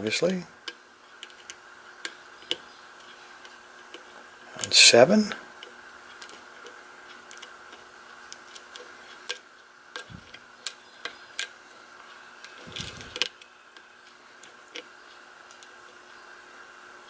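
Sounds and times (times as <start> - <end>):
faint steady hum: 0.0 - 17.0
lock pick metallic clicks: 5.6 - 11.6.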